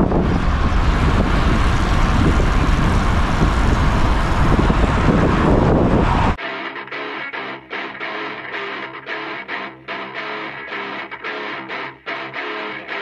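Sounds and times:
road rumble: 0.0s - 6.4s
wind buffeting microphone: 0.0s - 6.4s.

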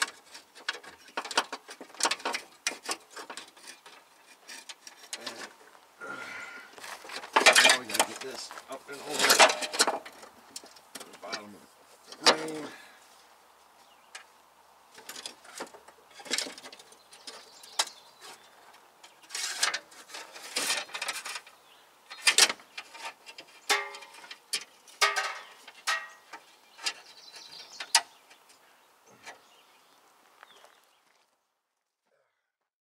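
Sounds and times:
metallic clicks and clanks of tools: 22.1s - 27.0s.

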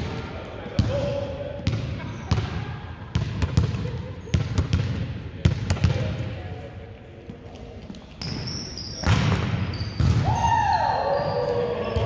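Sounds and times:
players' voices: 0.0s - 9.5s
sneakers squeaking on floor: 7.3s - 12.0s
volleyball being hit: 9.0s - 10.4s.

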